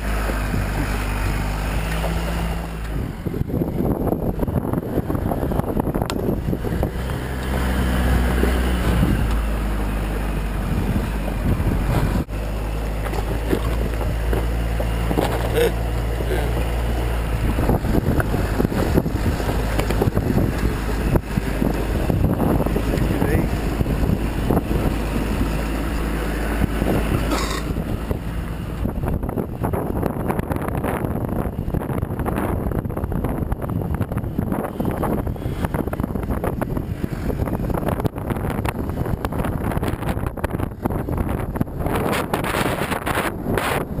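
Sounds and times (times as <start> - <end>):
vehicle engine drone: 0.0 - 44.0
wind buffeting microphone: 0.0 - 44.0
knocks and rattles: 12.9 - 23.8.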